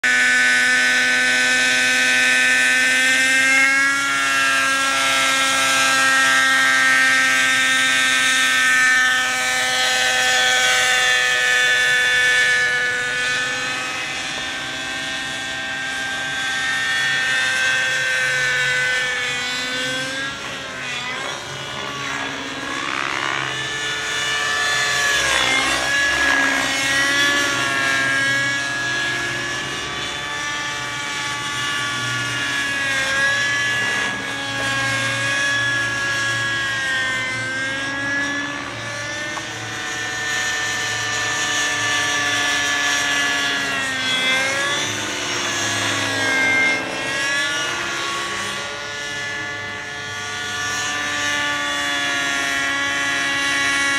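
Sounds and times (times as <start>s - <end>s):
model helicopter engine whine: 0.0s - 53.9s.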